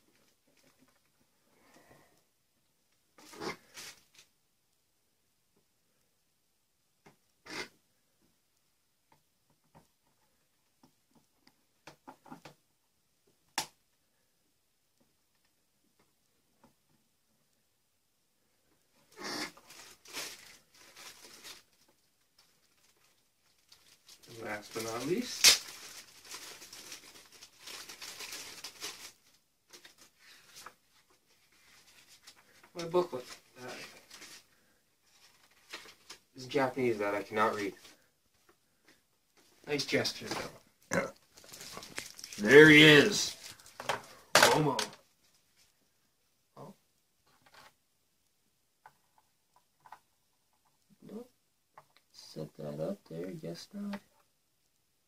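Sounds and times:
plastic rustling: 3.2 - 4.3, 19.0 - 40.6, 41.3 - 45.8
plastic packaging crinkling: 19.5 - 36.3, 41.3 - 45.7.

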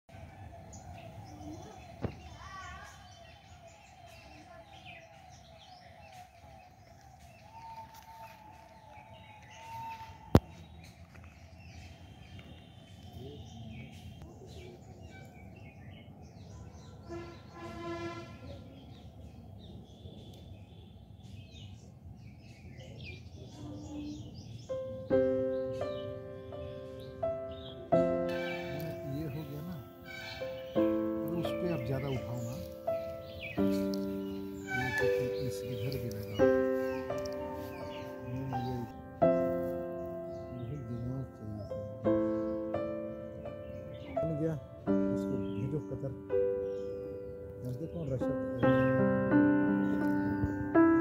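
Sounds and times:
birds chirping: 0.1 - 51.0
low outdoor background noise: 0.1 - 51.0
faint wavering call: 7.2 - 10.6, 33.6 - 39.1
piano music: 24.5 - 51.0.

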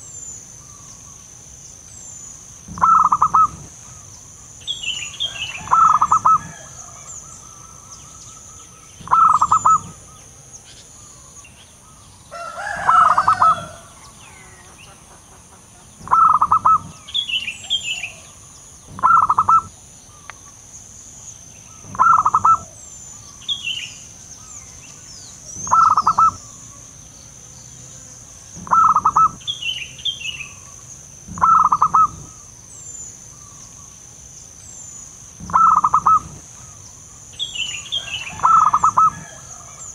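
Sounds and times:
insect hiss: 0.0 - 39.9
small birds chirping: 0.0 - 39.9
dove cooing: 2.7 - 4.0, 5.3 - 7.8, 9.0 - 10.2, 12.4 - 14.6, 16.0 - 19.7, 21.8 - 22.8, 25.5 - 26.5, 28.6 - 29.5, 31.3 - 32.4, 35.4 - 36.8, 38.0 - 39.9.

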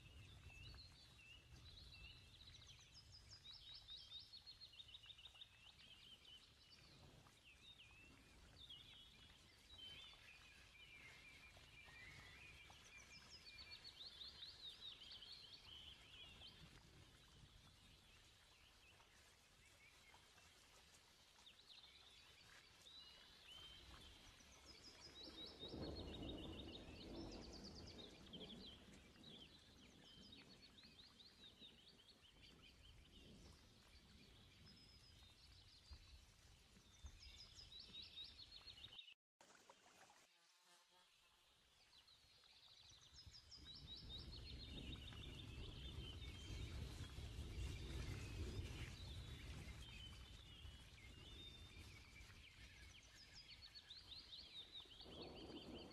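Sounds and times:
small birds twittering: 0.0 - 20.7.

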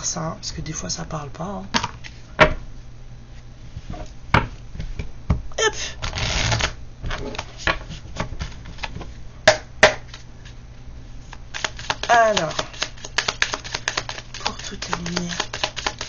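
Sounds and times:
cards riffling: 11.3 - 16.0
cards clicking and tapping: 11.5 - 16.0.

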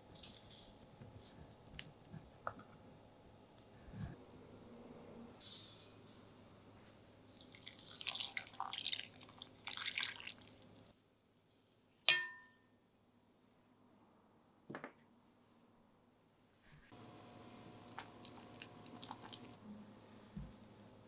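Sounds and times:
water pouring into pot: 7.4 - 10.6, 17.9 - 19.6
ceramic clink: 12.1 - 12.7.

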